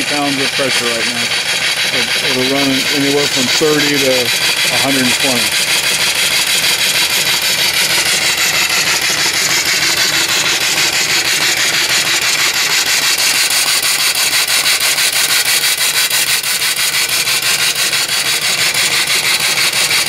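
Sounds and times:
steam engine exhaust chuffing: 0.0s - 20.0s.

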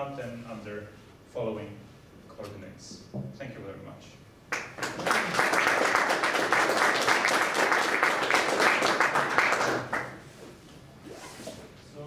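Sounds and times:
audience applauding: 4.5s - 10.2s.

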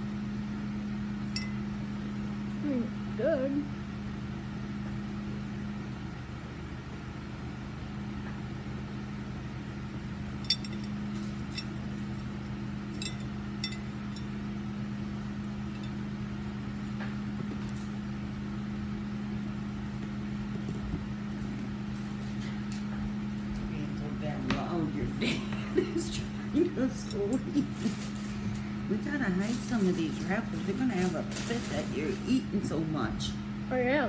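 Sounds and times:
steady low hum: 0.0s - 34.0s
metal spoon clinking against bowl: 10.4s - 11.8s, 13.0s - 14.3s.

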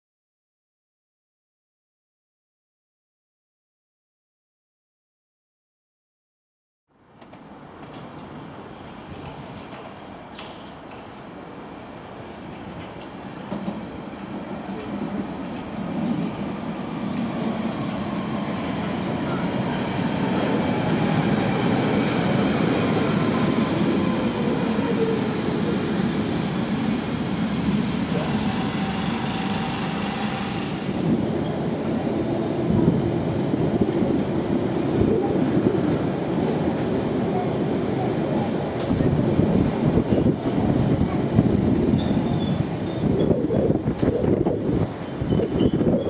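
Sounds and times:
train wheels rumbling on rails: 7.1s - 46.0s
high squeal: 28.1s - 31.0s, 40.7s - 43.4s, 44.9s - 46.0s
train whine falling in pitch: 28.1s - 31.1s.

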